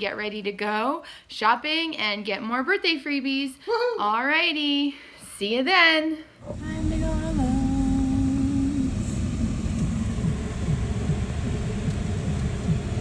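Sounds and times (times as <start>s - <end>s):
car engine and tyres rumbling: 6.4s - 13.0s
steady hum: 6.4s - 13.0s.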